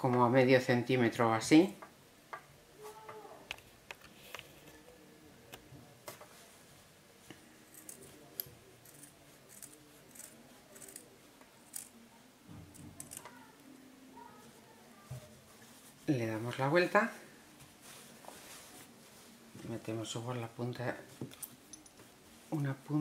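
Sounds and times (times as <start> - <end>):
cloth rustling: 14.2 - 23.0.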